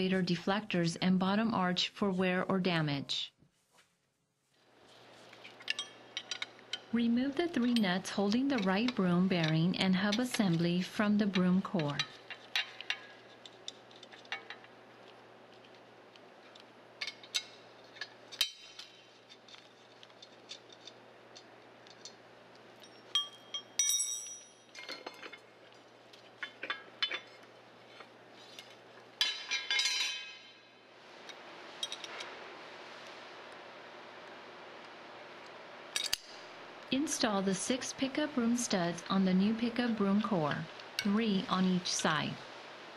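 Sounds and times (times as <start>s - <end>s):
ringing metallic clink: 22.9s - 24.7s.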